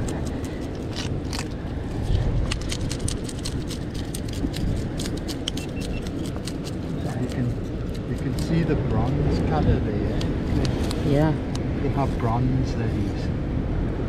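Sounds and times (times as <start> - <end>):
knife scraping fish scales: 0.0 - 8.6.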